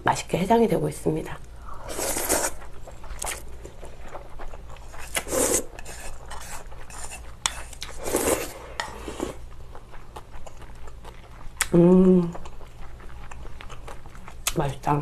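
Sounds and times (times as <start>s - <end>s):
broth sipped: 1.6s - 3.8s, 4.9s - 6.1s
noodles slurped: 1.8s - 9.5s.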